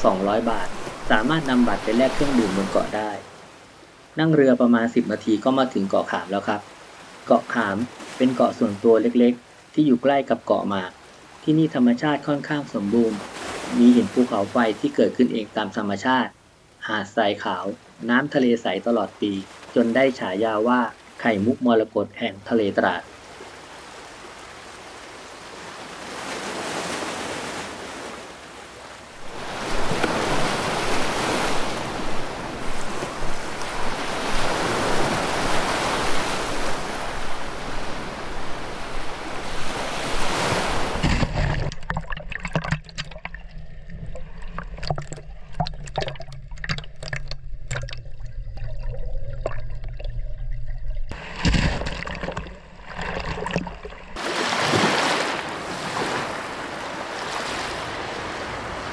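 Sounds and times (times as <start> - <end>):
sea waves washing on beach: 0.0 - 16.3, 22.5 - 41.8, 51.1 - 58.9.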